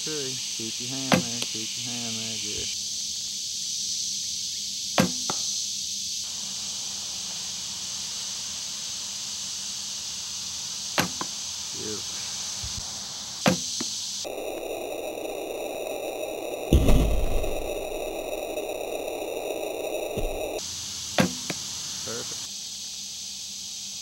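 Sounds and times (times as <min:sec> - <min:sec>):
steady high hiss: 0:00.0 - 0:24.0
arrow striking target: 0:05.0 - 0:05.4, 0:16.7 - 0:18.1
bow string snapping: 0:16.6 - 0:18.7.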